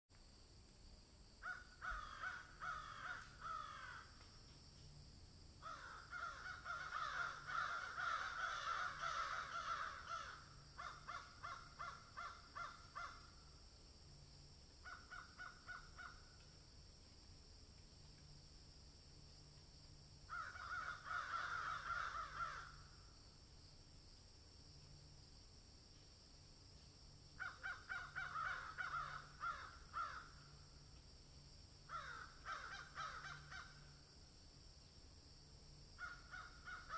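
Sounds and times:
harsh caw-like animal calls: 1.4 - 4.2, 5.6 - 13.5, 14.8 - 16.4, 20.3 - 23.0, 27.4 - 30.6, 31.9 - 34.0, 36.0 - 36.9.

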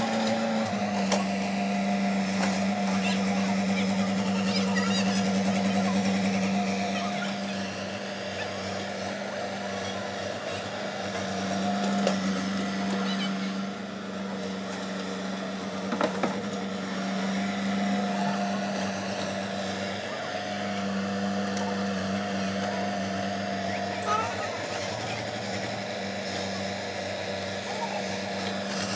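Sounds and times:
excavator diesel engine running: 0.0 - 28.9.

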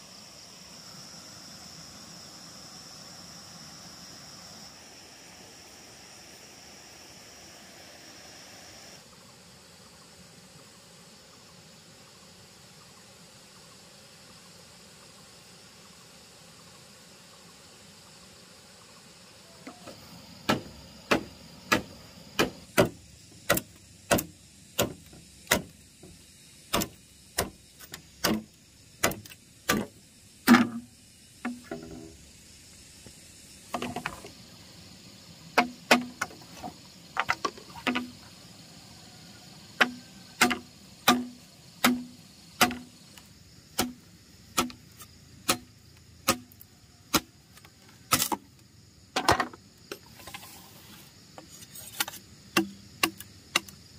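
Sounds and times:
hand tool knocking on bamboo: 35.6 - 36.4, 37.2 - 38.2, 39.8 - 42.9.

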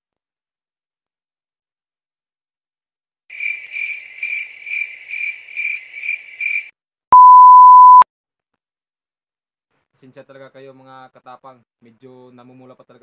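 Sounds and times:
cricket chirps: 3.3 - 6.7
censor beep tone: 7.2 - 8.0.

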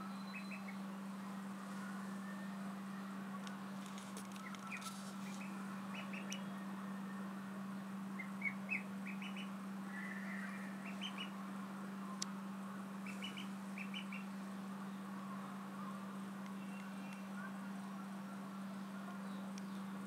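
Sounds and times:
steady low hum: 0.0 - 20.0
ducklings peeping: 0.2 - 0.8, 4.4 - 6.4, 8.2 - 11.4, 13.0 - 14.3.

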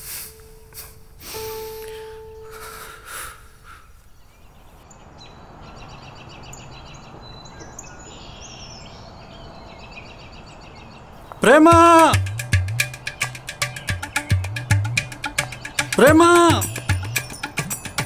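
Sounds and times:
held tone: 0.0 - 2.7
small birds chirping: 0.0 - 18.0.

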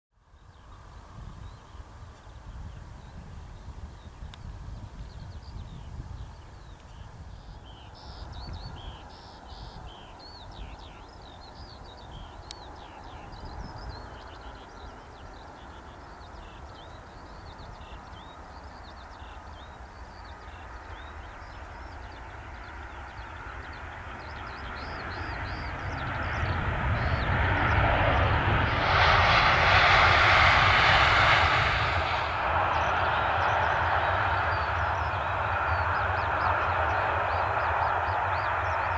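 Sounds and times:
jet airliner roar: 0.6 - 38.9.

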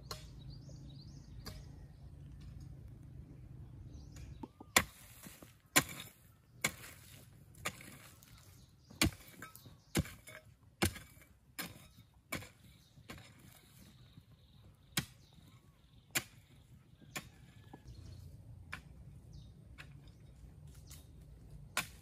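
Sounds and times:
hoe chopping into soil: 4.3 - 14.0, 14.9 - 15.5, 16.1 - 17.9, 19.7 - 22.0.

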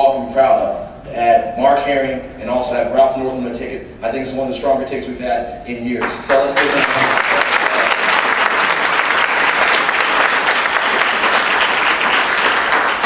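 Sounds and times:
audience applauding: 6.0 - 13.0.

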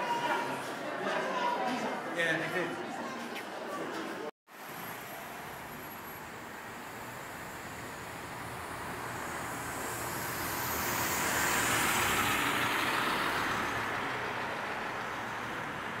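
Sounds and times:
bus driving past: 4.5 - 16.0.

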